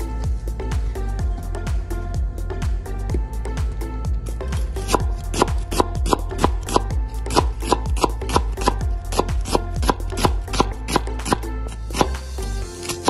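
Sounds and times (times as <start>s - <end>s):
background music with steady beat: 0.0s - 13.0s
knife slicing onion on board: 4.8s - 12.2s, 12.8s - 13.0s.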